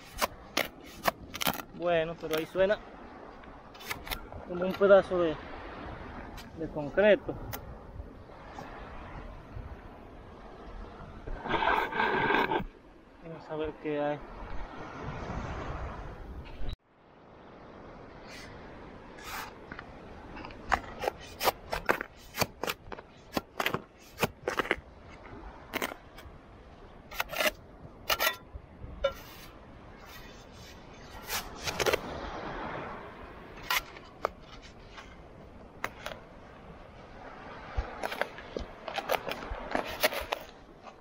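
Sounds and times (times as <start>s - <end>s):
shovel scraping into sand: 0.0s - 1.6s, 11.4s - 12.7s, 19.2s - 19.6s, 20.7s - 24.8s, 27.1s - 28.4s, 29.0s - 32.2s, 37.9s - 41.0s.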